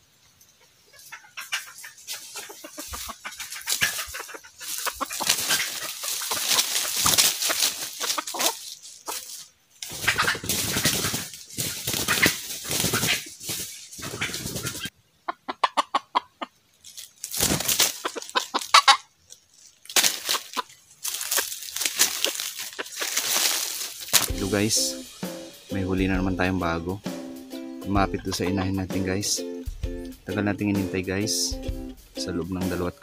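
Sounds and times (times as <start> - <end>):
rustling in dry leaves: 0.0 - 14.9, 16.6 - 26.9
junglefowl clucking and cackling: 0.6 - 16.6, 17.4 - 25.8, 26.8 - 29.6
wing flapping: 0.9 - 14.9, 16.9 - 19.0, 19.6 - 24.8.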